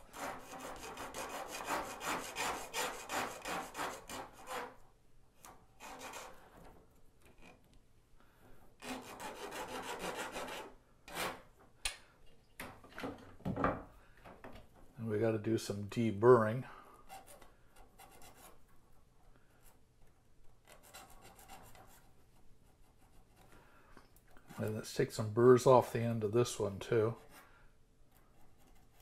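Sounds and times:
file scraping metal rail: 0.0 - 4.8, 5.8 - 6.5, 8.8 - 11.4.

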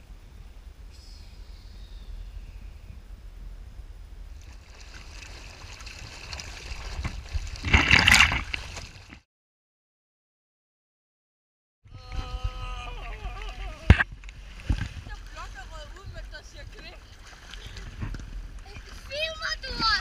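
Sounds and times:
wind rumble on microphone: 0.0 - 9.2, 11.9 - 20.0
water rushing along a hull: 2.1 - 9.2, 11.9 - 20.0
splash of spray: 4.4 - 9.0.

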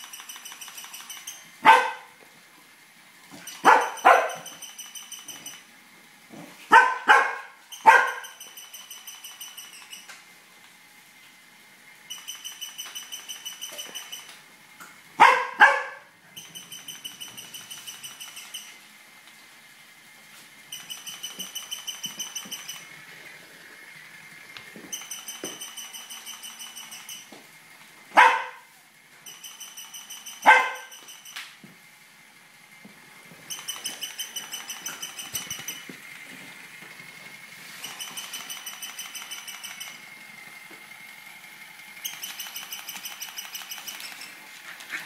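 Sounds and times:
toy rapid high-pitched pulsing: 0.0 - 2.1, 3.3 - 5.8, 6.8 - 10.2, 12.0 - 14.5, 15.2 - 19.0, 20.6 - 27.4, 28.2 - 31.6, 33.2 - 45.0
dog barking: 1.6 - 2.2, 3.6 - 4.5, 6.7 - 8.4, 15.2 - 16.1, 28.2 - 28.7, 30.4 - 31.0.

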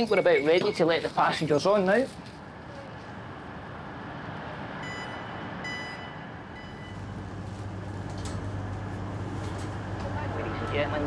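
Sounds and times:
train rumble: 6.2 - 11.0.

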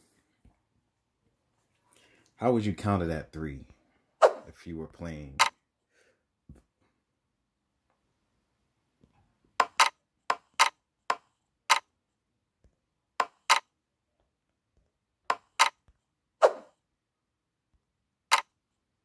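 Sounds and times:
sharp clicks of betting chips: 9.6 - 11.9, 15.3 - 15.8.

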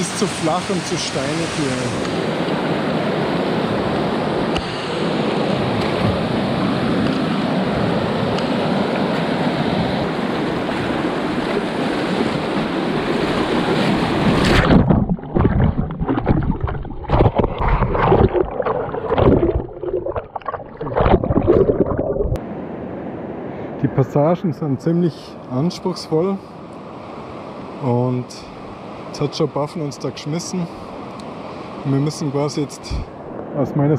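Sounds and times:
water splashing over camera: 13.5 - 22.4.

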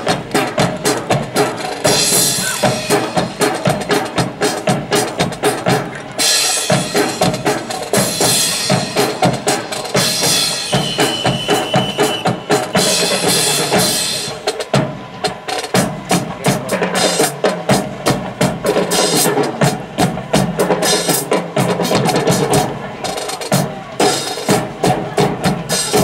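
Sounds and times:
marching drum line: 0.0 - 26.0.

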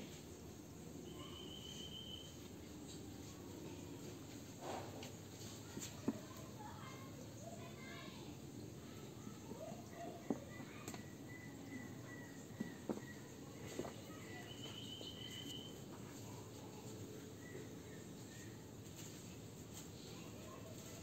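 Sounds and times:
thin high chirping calls: 1.0 - 2.4, 10.0 - 15.8.

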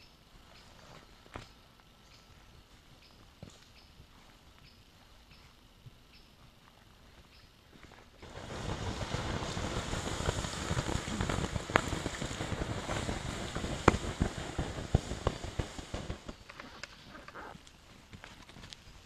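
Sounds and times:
water hissing on hot embers: 6.9 - 19.0.

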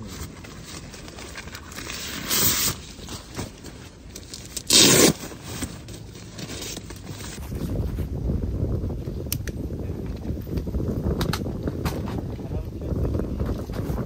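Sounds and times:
nylon sack rustling: 0.0 - 8.1.

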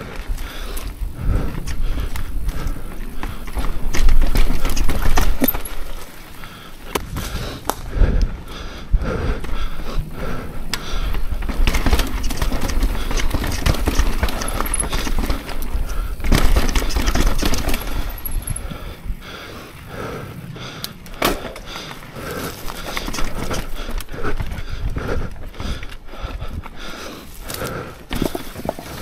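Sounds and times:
bike tyres knocking over rocks: 0.0 - 7.8, 9.4 - 18.7, 21.2 - 24.0, 27.5 - 29.0.

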